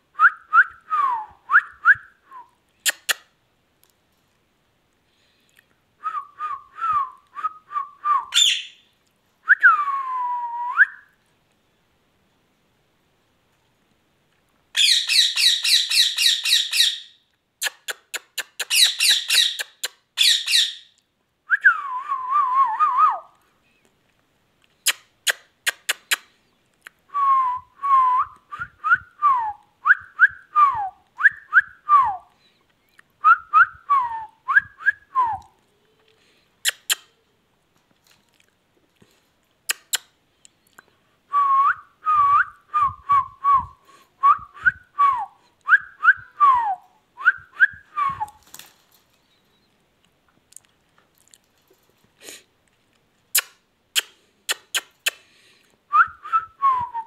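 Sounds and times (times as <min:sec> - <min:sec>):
parakeet whistling: 0:08.3 - 0:08.8, 0:14.8 - 0:17.1, 0:18.6 - 0:20.9.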